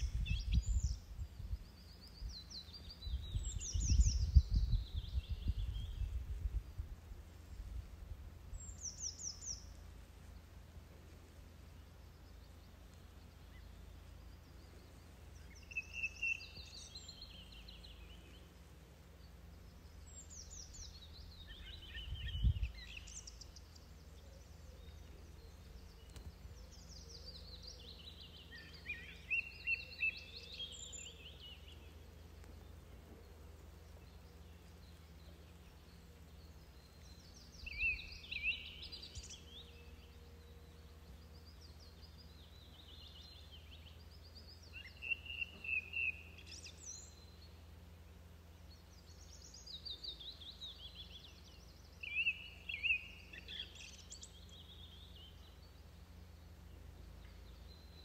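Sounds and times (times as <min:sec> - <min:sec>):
steady low rumble: 0:00.0 - 0:29.3
songbird singing: 0:00.0 - 0:58.0.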